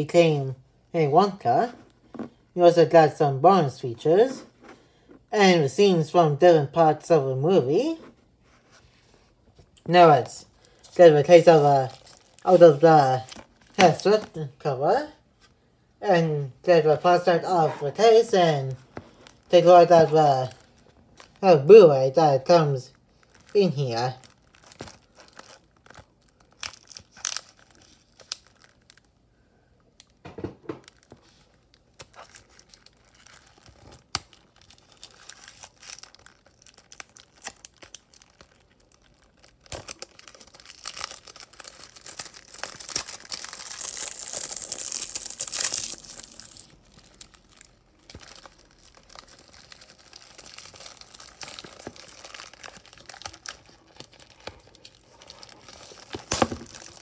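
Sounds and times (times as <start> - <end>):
plastic wrap crinkling and tearing: 9.6 - 14.5, 17.2 - 29.2, 29.9 - 57.0.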